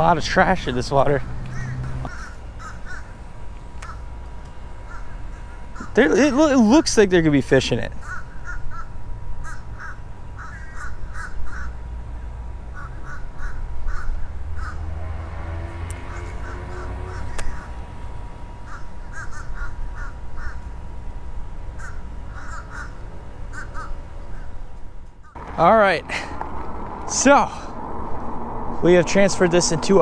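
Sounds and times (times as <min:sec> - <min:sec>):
crows cawing: 0:01.5 - 0:03.2, 0:03.8 - 0:04.1, 0:04.8 - 0:06.0, 0:07.9 - 0:11.8, 0:12.7 - 0:15.0, 0:16.0 - 0:17.8, 0:18.6 - 0:20.8, 0:21.7 - 0:24.6
low rumble: 0:25.3 - 0:30.0.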